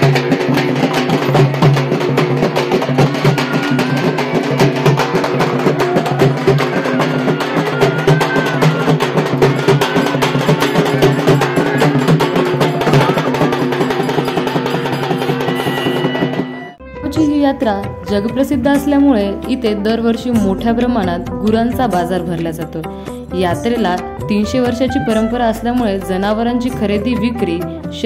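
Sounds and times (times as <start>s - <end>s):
fast dense drumming: 0.0s - 16.8s
melody: 13.8s - 19.8s.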